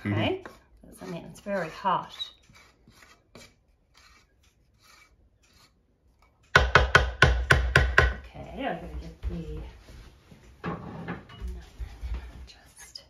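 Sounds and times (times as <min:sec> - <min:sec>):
wooden spoon scraping a pan: 0:00.0 - 0:06.6.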